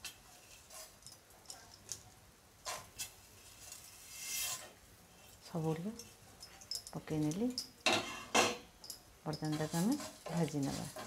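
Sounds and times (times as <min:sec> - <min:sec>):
spatula scraping a pan: 0:00.0 - 0:01.0, 0:02.6 - 0:05.4, 0:07.9 - 0:08.6, 0:09.5 - 0:11.0
spices clicking in a pan: 0:00.0 - 0:03.2.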